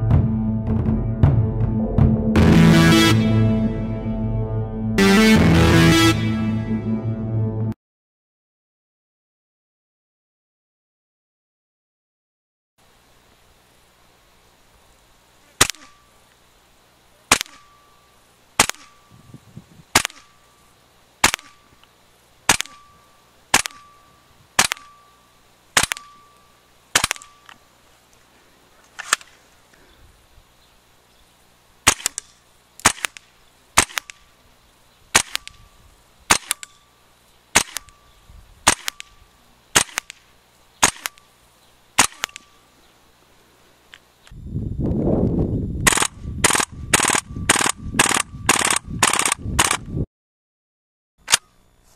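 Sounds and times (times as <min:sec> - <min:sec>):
airsoft rifle single shots: 0:15.6 - 0:16.0, 0:17.3 - 0:17.7, 0:18.6 - 0:19.0, 0:19.9 - 0:20.4, 0:21.2 - 0:21.6, 0:22.5 - 0:22.9, 0:23.5 - 0:23.9, 0:24.6 - 0:25.0, 0:25.8 - 0:26.2, 0:26.9 - 0:27.4, 0:31.8 - 0:34.2, 0:35.1 - 0:35.6, 0:36.3 - 0:36.8, 0:37.6 - 0:38.0, 0:38.6 - 0:39.2, 0:39.8 - 0:41.2, 0:42.0 - 0:42.5, 0:45.8 - 0:49.8.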